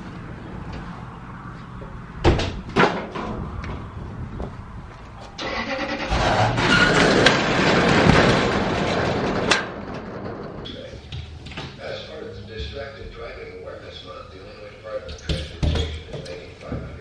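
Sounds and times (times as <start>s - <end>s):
roll-up steel door rattling: 5.8s - 11.5s.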